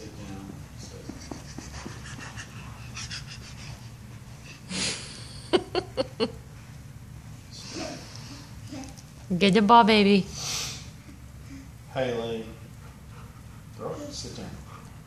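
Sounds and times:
dog panting: 0:00.2 - 0:04.7, 0:11.6 - 0:15.0.

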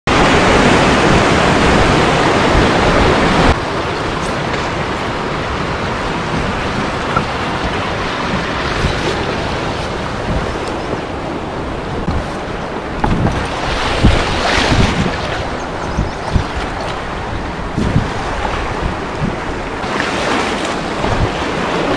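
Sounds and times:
river rapids rushing: 0:00.1 - 0:21.9.

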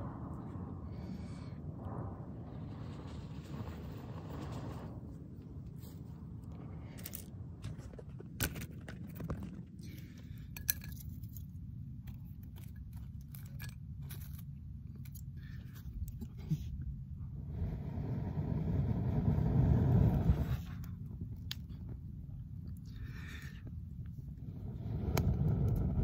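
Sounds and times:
low rumble: 0:00.0 - 0:26.0
dry sticks clicking and scraping: 0:06.9 - 0:16.6.

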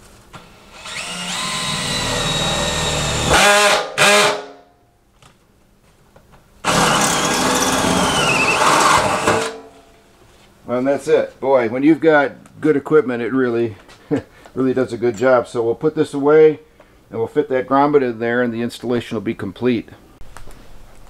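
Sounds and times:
drill cutting through sheet metal: 0:00.4 - 0:04.5, 0:06.6 - 0:09.6.

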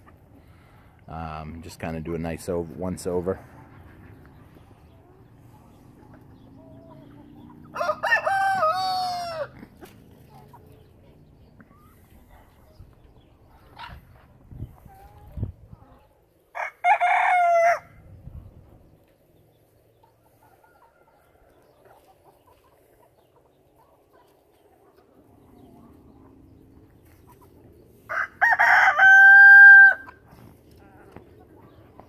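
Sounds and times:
rooster crowing: 0:07.7 - 0:09.5, 0:16.5 - 0:18.0, 0:28.1 - 0:30.2.

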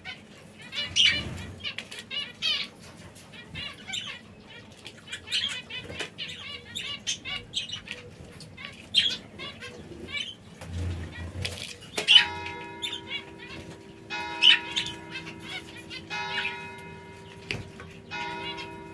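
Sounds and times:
canaries chirping: 0:00.0 - 0:18.9
sustained bell-like tones: 0:12.1 - 0:18.9.

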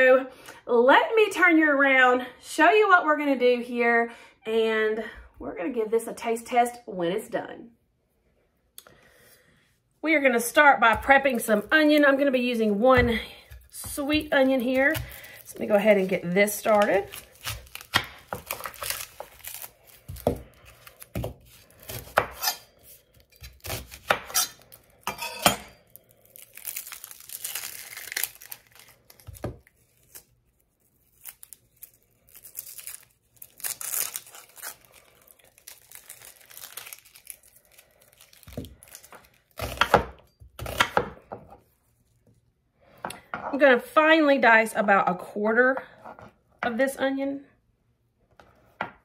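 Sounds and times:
knife cutting onion on countertop: 0:10.8 - 0:25.8, 0:38.4 - 0:41.6
onion skin crinkling and tearing: 0:11.0 - 0:25.1, 0:25.8 - 0:41.0.

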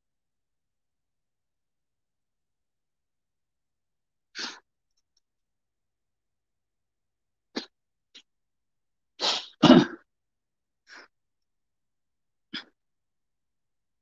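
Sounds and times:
person sneezing: 0:09.2 - 0:10.1.

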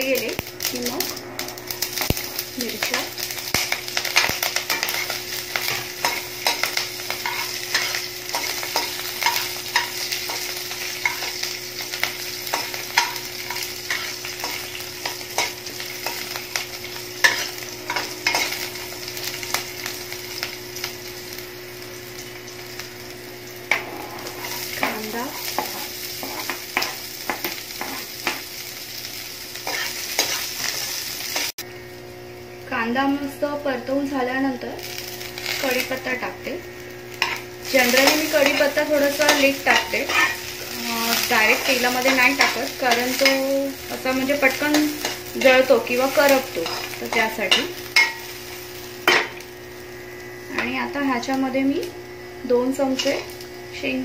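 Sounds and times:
chillies sizzling in hot oil: 0:00.0 - 0:54.0
metal spatula scraping pan: 0:12.5 - 0:19.0, 0:37.2 - 0:40.4.

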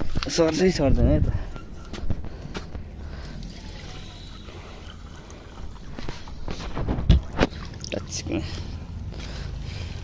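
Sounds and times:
footsteps: 0:00.0 - 0:03.8
water splashing into steel bowl: 0:03.8 - 0:08.4.

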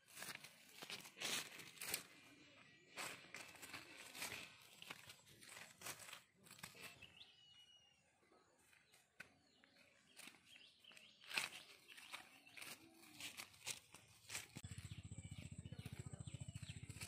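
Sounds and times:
handling rustles and clicks: 0:03.1 - 0:07.1.

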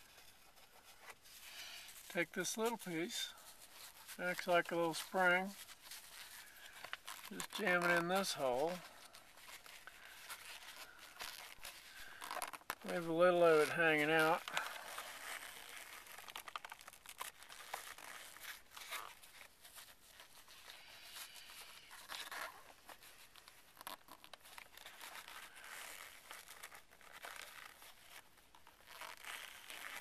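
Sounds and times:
foam scratching and rustling: 0:00.0 - 0:30.0.

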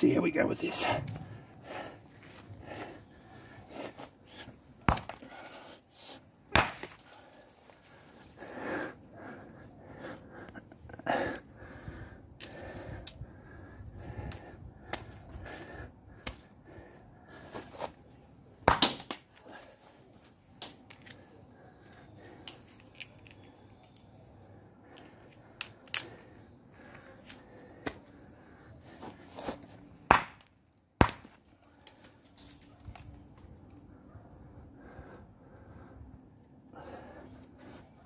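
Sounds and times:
sledgehammer cracking on rock: 0:18.7 - 0:19.2, 0:30.1 - 0:31.4.

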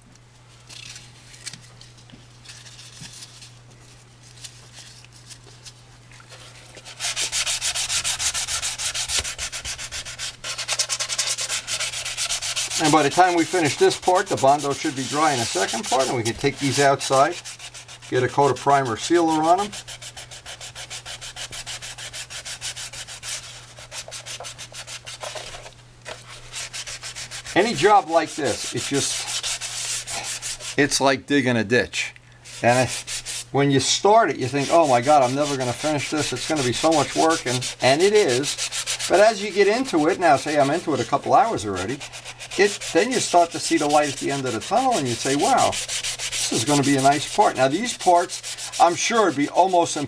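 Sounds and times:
hand sanding strokes: 0:06.3 - 0:30.9, 0:32.5 - 0:50.0.

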